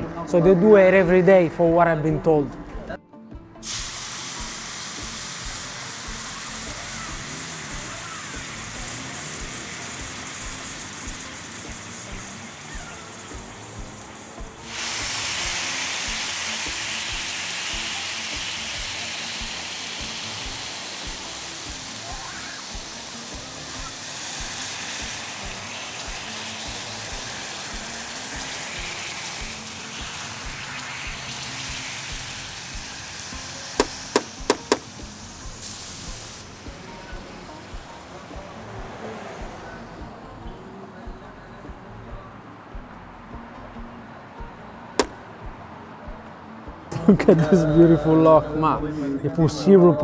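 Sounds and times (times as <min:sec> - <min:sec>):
background music: 0:00.0 - 0:50.0
hot oil sizzling: 0:03.6 - 0:40.0, 0:45.0 - 0:45.2.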